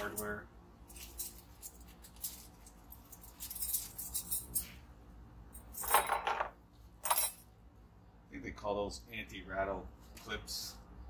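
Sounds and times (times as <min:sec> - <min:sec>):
metal brake parts clinking: 0:00.0 - 0:04.8.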